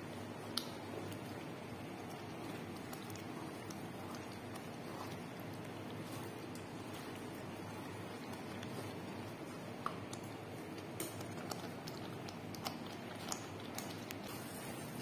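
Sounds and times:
thick sauce hissing in a pot: 14.3s - 15.0s.

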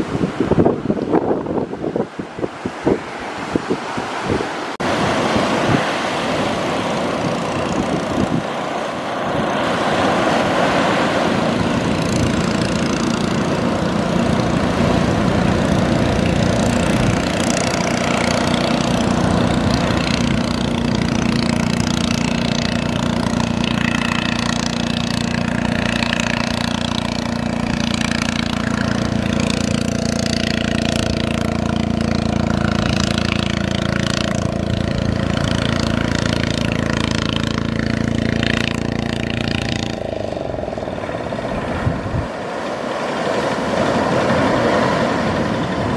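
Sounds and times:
surf: 0.0s - 45.9s
wind: 0.0s - 45.9s
outboard motor running: 4.8s - 45.9s.

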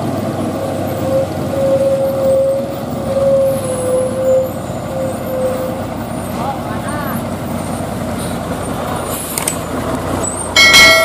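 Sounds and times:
truck diesel engine running: 0.0s - 11.0s.

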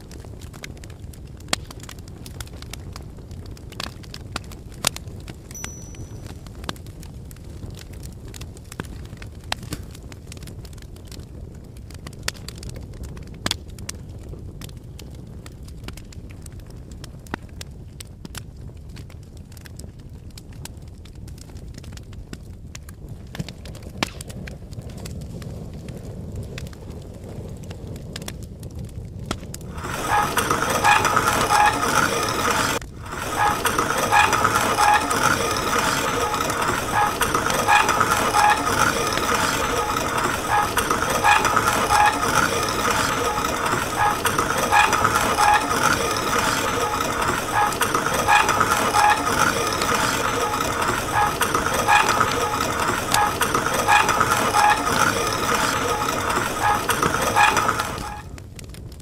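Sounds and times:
coffee mill grinding beans: 29.7s - 58.3s.

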